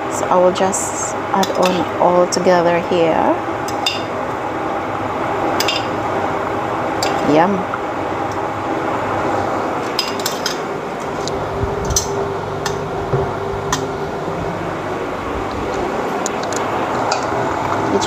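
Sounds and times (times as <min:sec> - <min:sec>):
metal tongs clinking on pot: 0:01.4 - 0:01.9, 0:03.7 - 0:04.1, 0:05.6 - 0:05.9, 0:07.0 - 0:07.3, 0:09.9 - 0:10.6.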